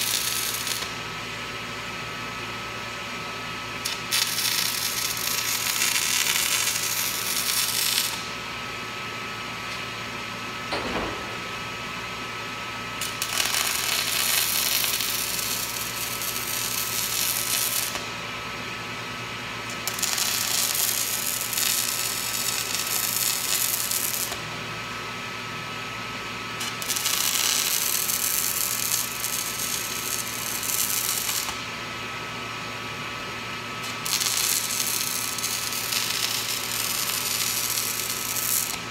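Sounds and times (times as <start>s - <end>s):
arc welding hiss: 0.0s - 1.1s, 3.8s - 8.4s, 13.0s - 18.2s, 19.7s - 24.5s, 26.6s - 31.7s, 33.8s - 38.9s
steady hum: 4.9s - 16.5s.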